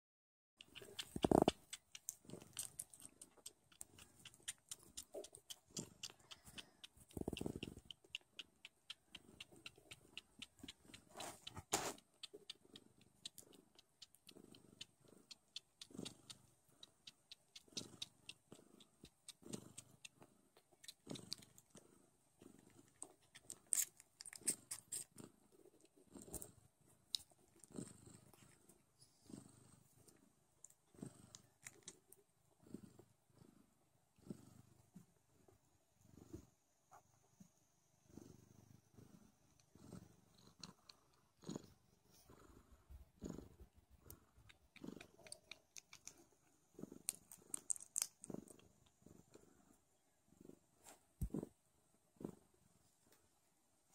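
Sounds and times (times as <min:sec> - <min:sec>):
kittens suckling: 0:00.6 - 0:29.4, 0:30.1 - 0:32.2, 0:39.6 - 0:49.5, 0:51.2 - 0:51.6
cat purring: 0:00.6 - 0:53.9.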